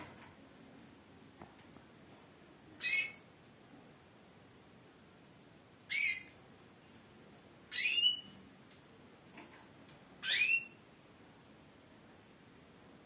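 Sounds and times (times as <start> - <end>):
canary calling: 2.8 - 3.3, 5.8 - 6.4, 7.7 - 8.4, 10.2 - 10.8.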